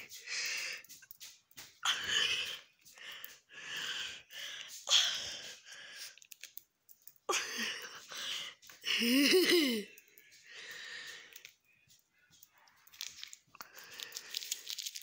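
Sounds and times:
paper wrapper crinkling: 0:12.6 - 0:15.0.

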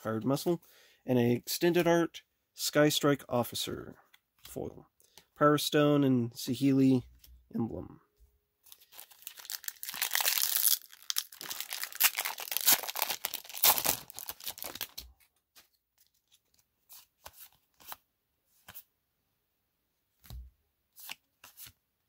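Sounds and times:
foil wrapper tearing and crinkling: 0:08.7 - 0:15.0.

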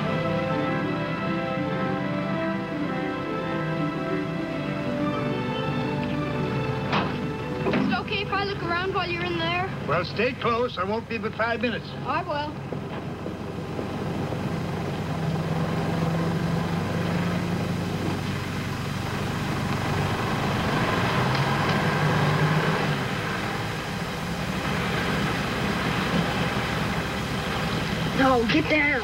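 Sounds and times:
street traffic rumble: 0:00.0 - 0:29.0.

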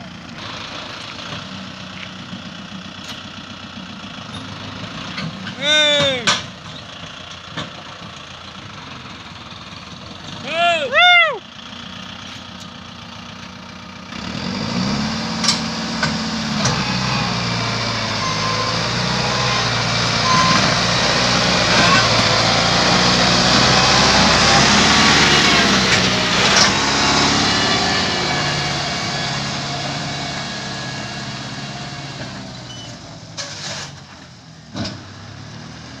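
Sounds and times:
tractor diesel engine revving: 0:00.0 - 0:36.0.

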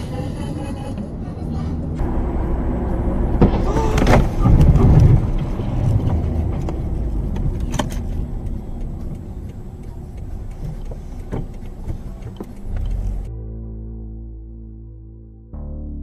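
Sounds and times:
car road and engine rumble: 0:00.0 - 0:14.4.

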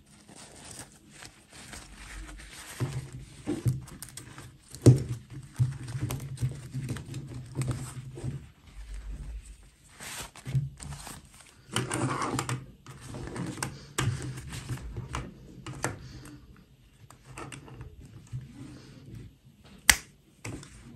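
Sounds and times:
cloth rustling: 0:00.0 - 0:12.3.

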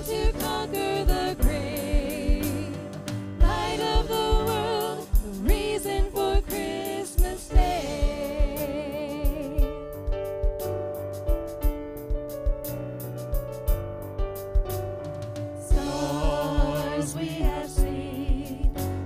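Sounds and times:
vocal quartet singing in harmony: 0:00.0 - 0:09.9, 0:15.7 - 0:19.0
steady drum beat: 0:00.0 - 0:19.0.

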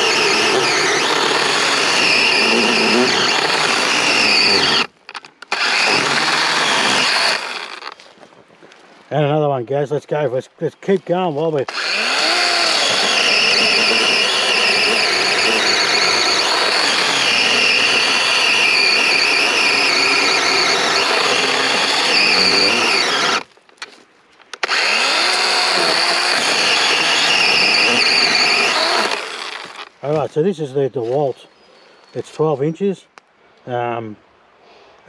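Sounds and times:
chainsaw cutting log: 0:00.0 - 0:08.1, 0:11.6 - 0:23.9, 0:24.6 - 0:30.2.

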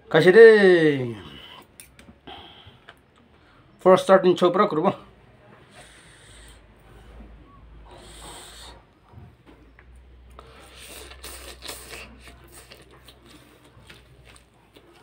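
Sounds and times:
man slurping and chewing noodles: 0:10.3 - 0:15.0.

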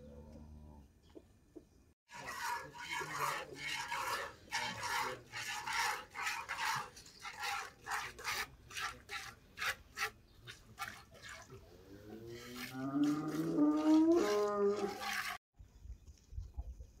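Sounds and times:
cow mooing: 0:12.2 - 0:15.0.

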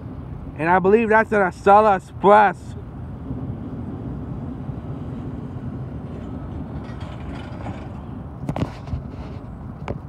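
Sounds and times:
train rumble: 0:00.0 - 0:10.0.

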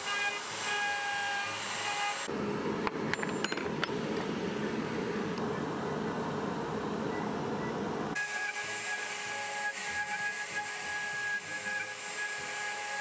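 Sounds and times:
cnc router whining: 0:08.2 - 0:13.0.

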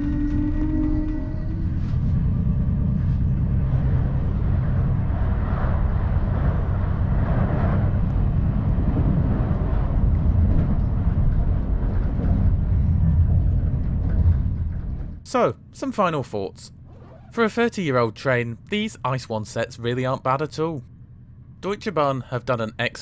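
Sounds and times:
passing freight train: 0:00.0 - 0:15.3
train rumbling at speed: 0:00.0 - 0:23.0.

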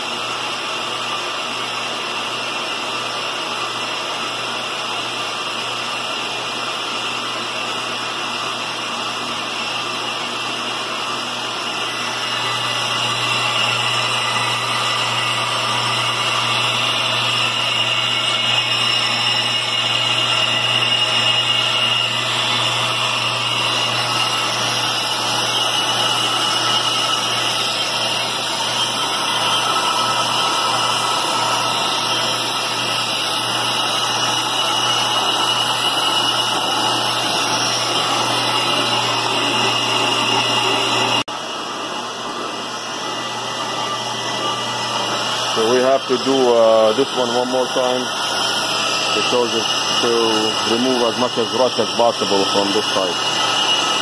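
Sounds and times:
lathe motor hum: 0:09.6 - 0:54.0
hissing scrape of metal cutting: 0:11.8 - 0:41.3, 0:42.9 - 0:54.0.

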